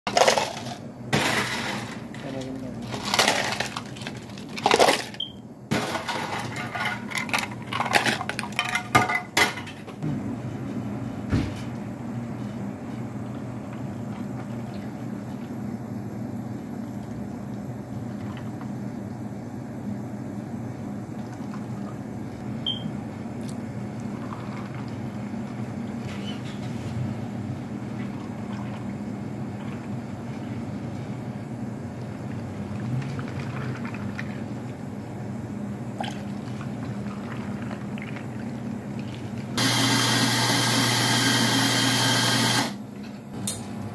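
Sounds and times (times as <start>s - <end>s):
ice cubes clinking into plastic cups: 0.1s - 5.2s.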